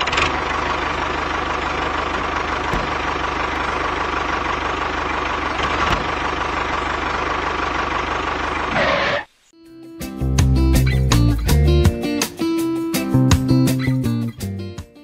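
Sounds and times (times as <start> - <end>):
tractor engine running: 0.0 - 9.4.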